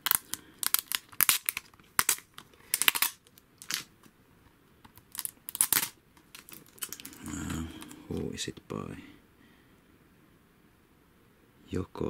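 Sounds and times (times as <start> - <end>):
plastic crinkling: 0.0 - 4.1, 4.8 - 8.2.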